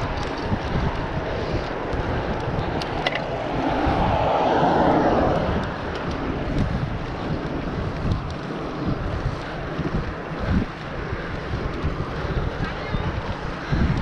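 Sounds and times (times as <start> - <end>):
tyre and road rush: 0.0 - 14.0
wind buffeting microphone: 0.0 - 14.0
broad rushing sound: 2.4 - 7.0.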